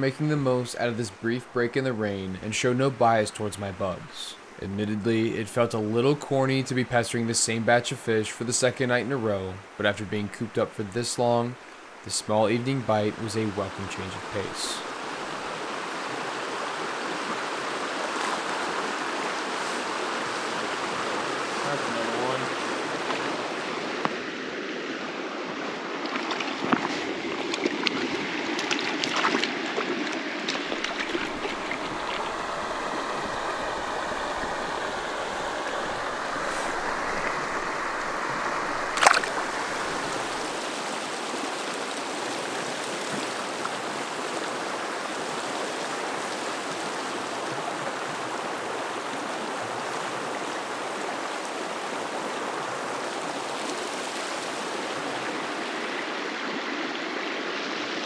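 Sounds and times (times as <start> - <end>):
creek running over cobbles: 12.5 - 24.4, 25.2 - 56.9
small splashes: 26.0 - 44.3.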